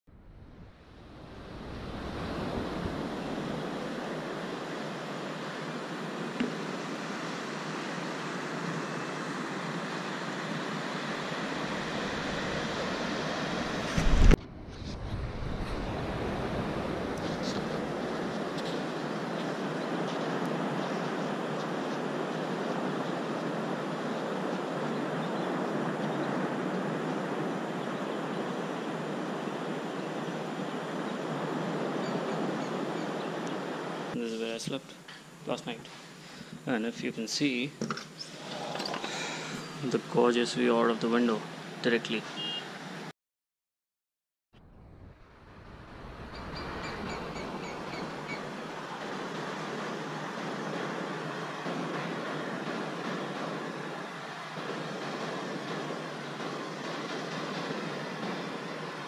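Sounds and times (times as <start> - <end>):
wind gust on microphone: 0.1 - 6.1, 11.1 - 34.2, 44.6 - 59.0
ocean surf on beach: 0.4 - 34.5, 39.1 - 43.1, 45.3 - 59.0.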